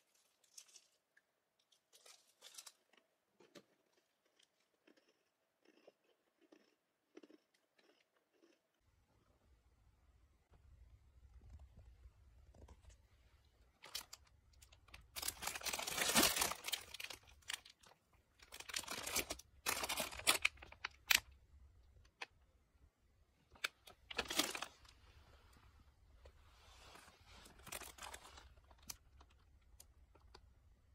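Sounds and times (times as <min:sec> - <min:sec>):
plastic packaging crinkling: 0:13.8 - 0:21.3, 0:23.6 - 0:25.0, 0:26.8 - 0:30.3.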